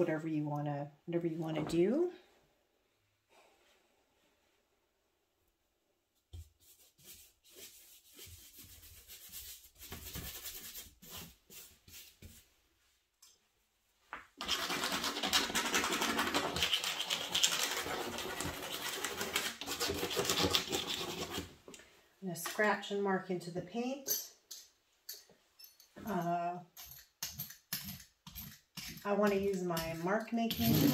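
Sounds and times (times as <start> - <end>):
paintbrush scratching on paper: 14.4 - 21.5
tool scraping through wet paint: 14.4 - 21.5.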